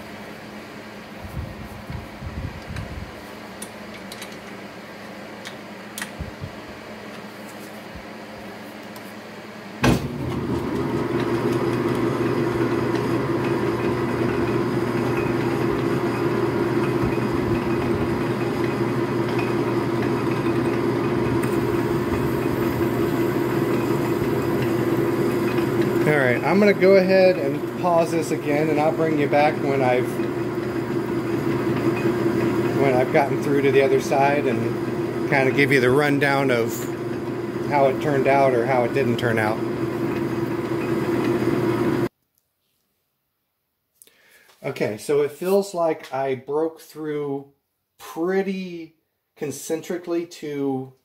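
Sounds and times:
lathe motor humming: 10.0 - 42.1
drill bit cutting metal: 10.7 - 42.1.

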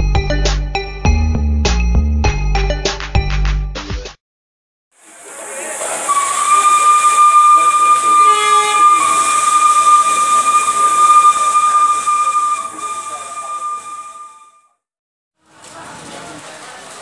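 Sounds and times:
steam hissing: 5.0 - 14.3
steam locomotive whistle: 5.0 - 14.6.

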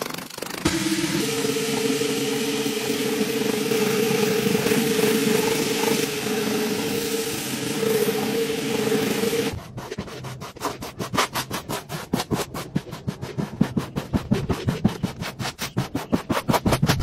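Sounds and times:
floor-scrubbing machine humming: 0.5 - 10.1
squeegee scraping wet rug: 9.0 - 17.0.

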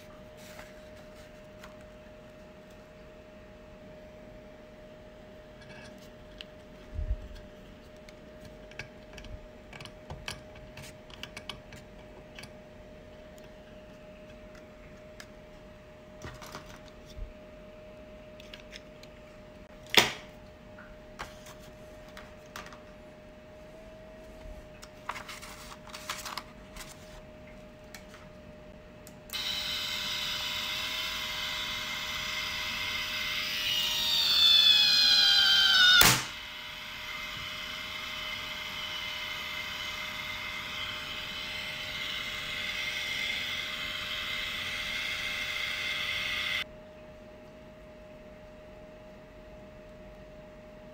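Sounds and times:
small electric motor whining: 29.3 - 46.7.

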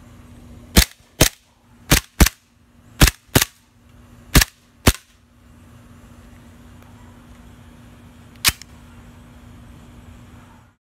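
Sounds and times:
airsoft pistol shots: 0.7 - 2.4, 3.0 - 3.6, 4.3 - 5.1.

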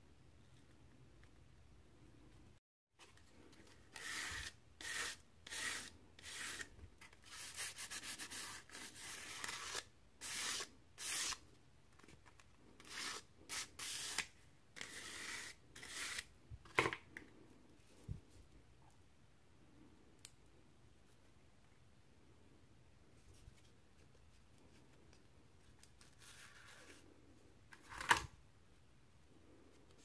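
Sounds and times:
sanding strokes on sandpaper: 4.0 - 11.4.

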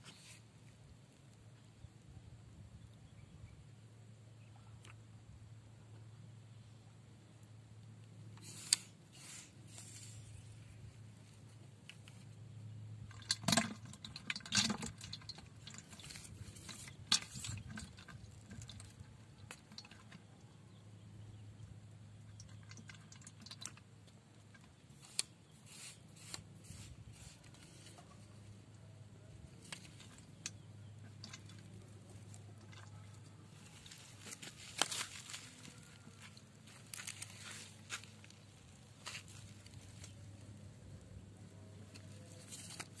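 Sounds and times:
rustling close to microphone: 29.5 - 40.6.

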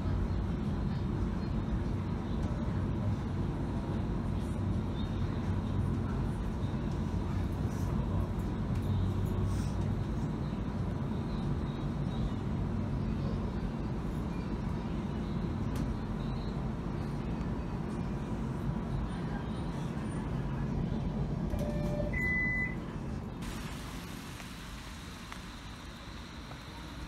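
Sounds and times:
light rail vehicle rumble: 0.0 - 27.0
faint steady whine: 20.9 - 27.0.

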